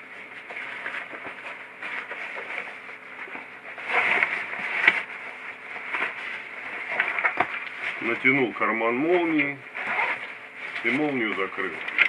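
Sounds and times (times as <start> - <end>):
nylon fabric rustling: 0.2 - 12.0
zipper pulled closed: 9.8 - 10.4.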